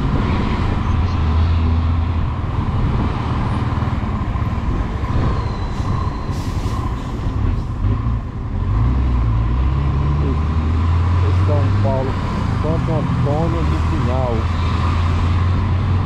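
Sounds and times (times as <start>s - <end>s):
wind noise: 0.0s - 8.3s.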